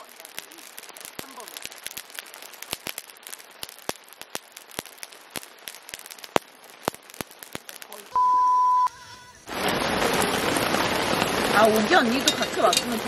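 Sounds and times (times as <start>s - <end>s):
electronic beep: 8.1s - 8.9s.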